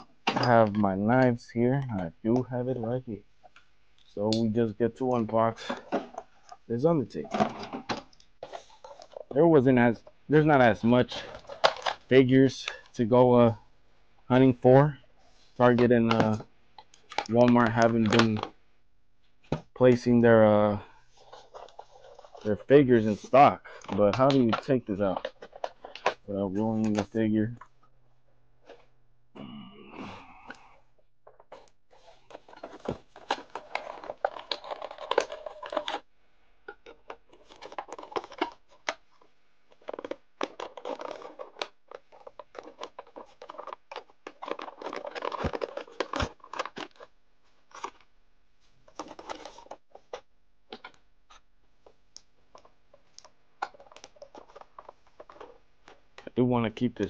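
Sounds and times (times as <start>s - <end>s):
packaging rustling and crinkling: 7.2s - 9.4s, 11.0s - 12.8s, 21.0s - 27.2s, 31.3s - 36.1s, 36.7s - 48.1s, 48.8s - 56.2s.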